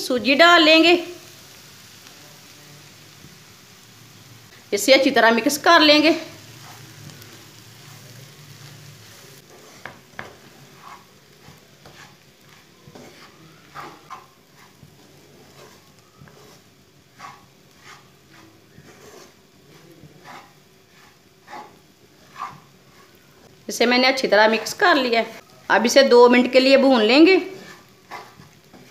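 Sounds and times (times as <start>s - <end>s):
faint sizzle: 0.0s - 28.9s
spatula scraping frying pan: 5.4s - 25.5s, 26.8s - 28.9s.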